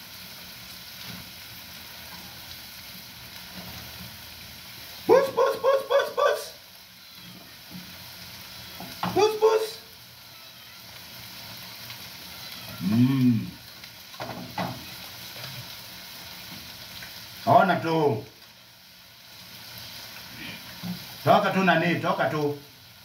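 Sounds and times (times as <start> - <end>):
sausages sizzling in a frying pan: 0.0 - 23.0
high voice calling: 5.1 - 6.6.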